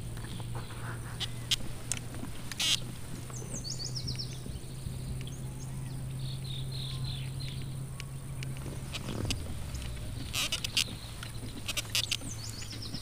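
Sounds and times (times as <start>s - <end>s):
small birds chirping: 0.0s - 13.0s
steady low hum: 0.0s - 13.0s
sharp clicks: 1.2s - 4.5s, 7.4s - 13.0s.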